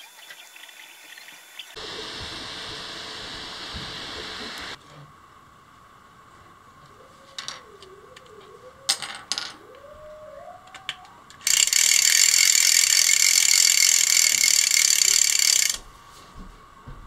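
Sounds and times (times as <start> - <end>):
hand-cranked fan gear whirr: 11.4 - 15.8.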